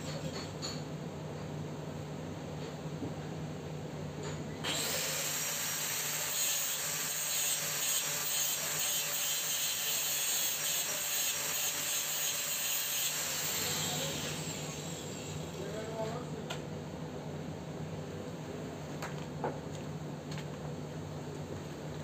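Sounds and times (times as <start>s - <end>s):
welding arc hissing: 4.7s - 15.6s.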